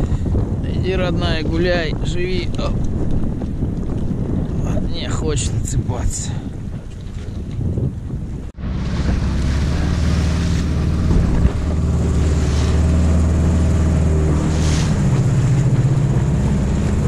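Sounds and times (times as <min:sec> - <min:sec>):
water and wind rushing: 0:00.0 - 0:17.0
motorboat engine running: 0:02.4 - 0:04.7, 0:06.6 - 0:17.0.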